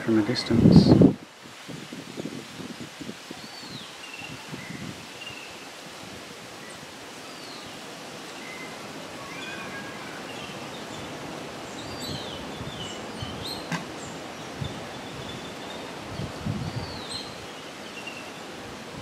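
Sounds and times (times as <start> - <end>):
steady background hiss: 0.0 - 19.0
small birds chirping and whistling: 3.4 - 5.7, 6.6 - 18.5.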